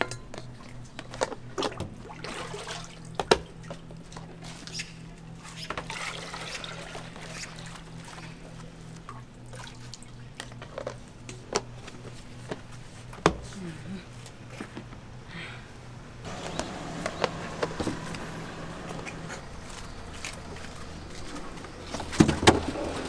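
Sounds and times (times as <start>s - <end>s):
ladle clanking against pot: 0.0s - 0.5s
liquid pouring into containers: 0.6s - 3.8s, 5.8s - 10.9s.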